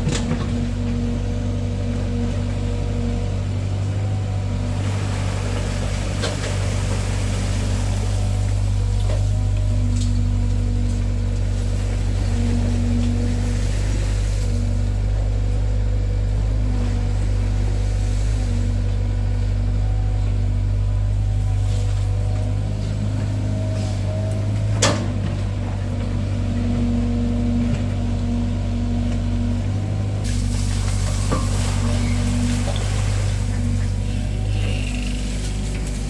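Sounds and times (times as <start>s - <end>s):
diesel engine running: 0.0s - 36.0s.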